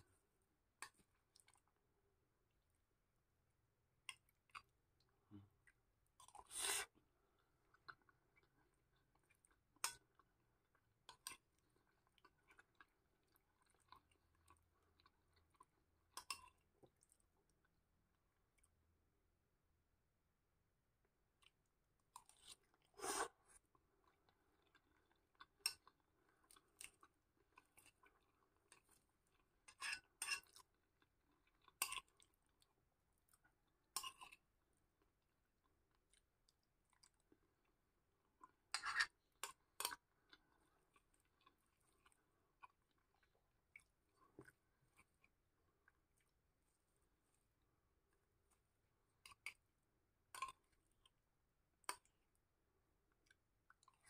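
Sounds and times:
metal spoon on glass bowl: 38.7s - 39.1s.

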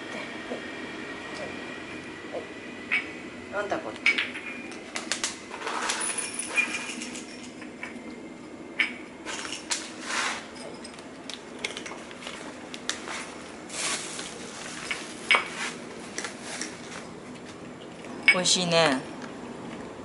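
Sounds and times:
glass bowls clinking: 5.5s - 8.0s, 8.8s - 11.0s, 14.8s - 15.6s
cats chewing and smacking: 16.1s - 18.2s, 19.1s - 20.0s.

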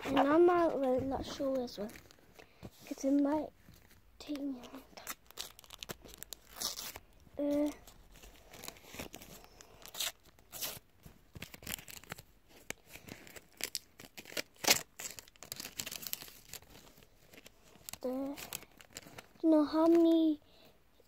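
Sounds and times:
packet tearing and crinkling: 4.3s - 20.1s.

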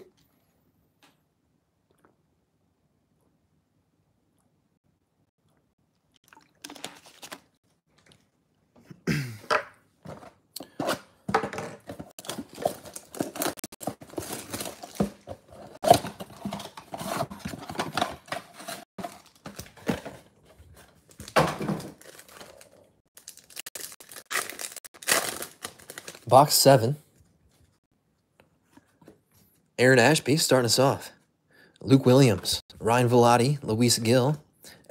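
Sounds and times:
wrappers crinkling: 22.0s - 26.3s
cardboard ripping: 23.3s - 26.1s.

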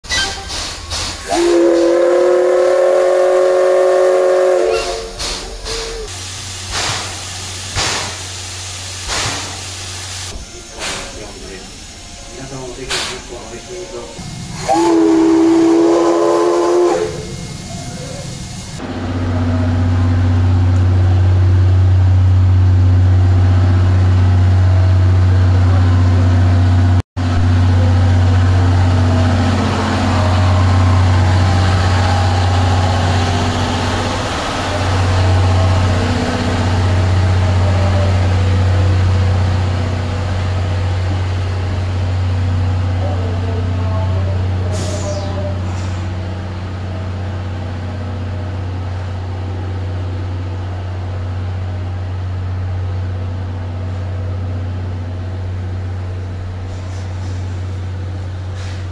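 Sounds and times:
steam locomotive whistle: 0.0s - 6.2s, 10.3s - 18.4s, 27.4s - 40.8s, 44.0s - 46.1s
short steam hiss: 0.1s - 18.8s, 44.7s - 46.2s, 56.6s - 57.8s, 58.5s - 58.9s.

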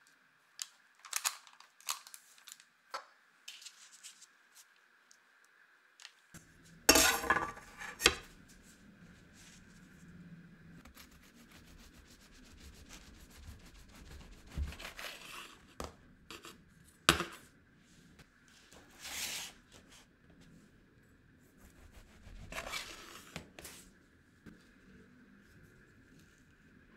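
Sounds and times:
paper rustling: 3.5s - 4.8s
knife cutting sponge cake: 10.8s - 16.6s, 21.6s - 23.8s.

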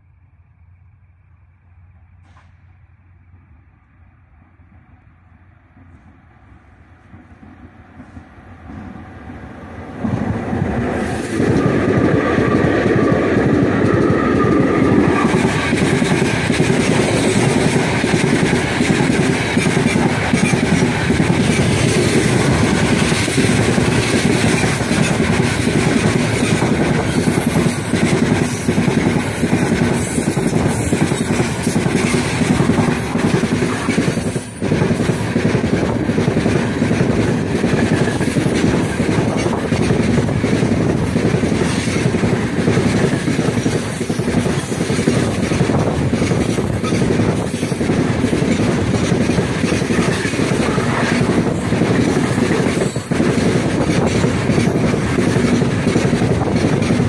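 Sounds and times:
freight train rumbling: 0.0s - 57.0s
locomotive high whine: 0.0s - 57.0s
wagons clattering over rail joints: 13.4s - 57.0s.

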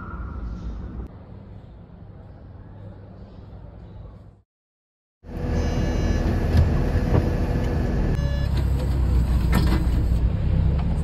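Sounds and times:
bus engine rumbling: 5.3s - 11.0s.

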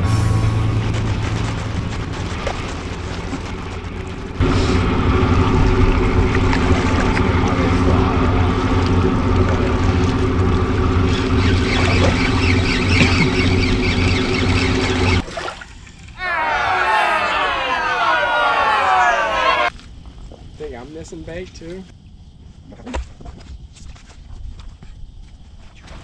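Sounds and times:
boat engine pulsing hum: 0.0s - 16.2s.

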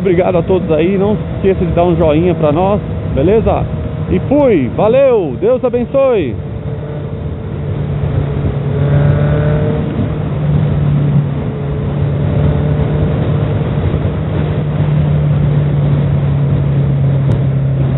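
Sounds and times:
motorcycle engine running: 0.0s - 17.9s.

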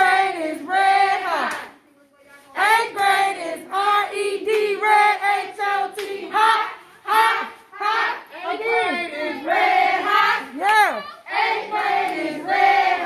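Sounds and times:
group of voices chanting: 2.6s - 13.0s.

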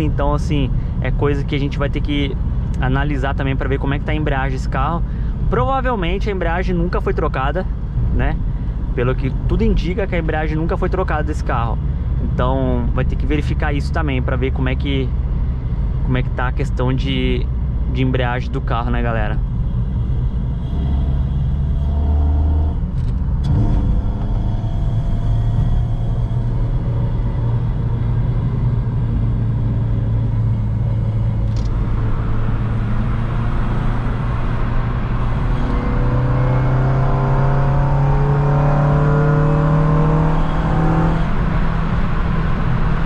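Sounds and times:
car engine while driving: 0.0s - 43.0s
road noise: 0.0s - 43.0s.

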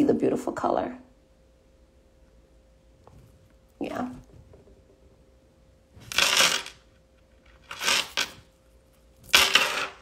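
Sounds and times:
rustling scrapes: 7.4s - 10.0s.

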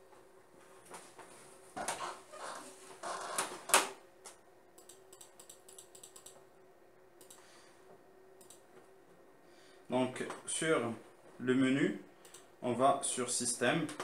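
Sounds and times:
computer mouse clicks: 4.8s - 6.4s, 7.2s - 7.5s, 8.4s - 8.7s, 12.2s - 12.5s.

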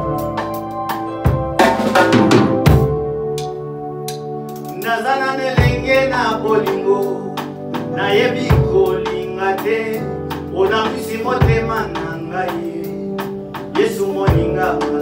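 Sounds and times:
instrumental accompaniment: 0.0s - 15.0s
man singing into a microphone: 4.7s - 15.0s.

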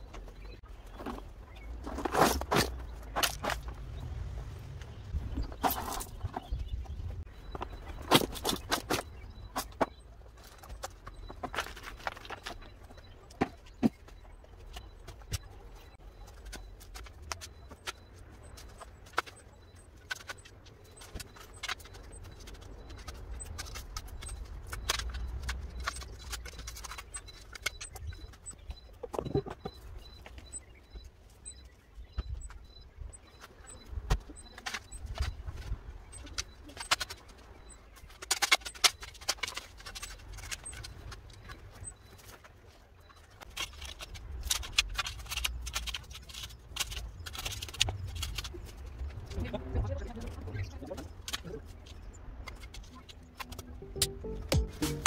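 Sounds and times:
stones and gravel scraping: 0.9s - 4.0s.

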